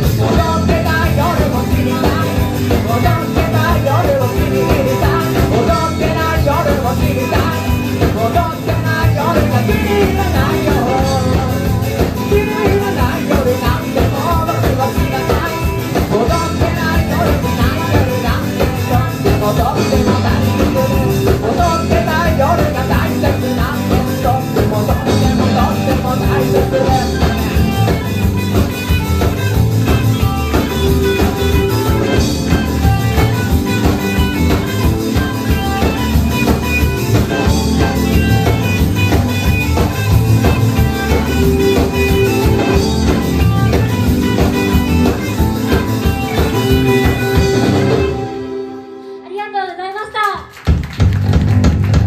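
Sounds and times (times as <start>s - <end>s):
live rock band playing: 0.0s - 52.0s.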